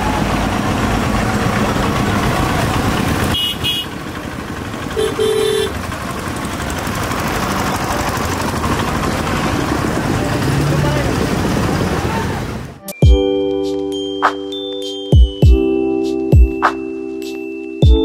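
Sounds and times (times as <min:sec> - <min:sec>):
traffic engines running: 0:00.0 - 0:12.8
vehicle horn honking: 0:03.3 - 0:04.0, 0:04.9 - 0:05.8.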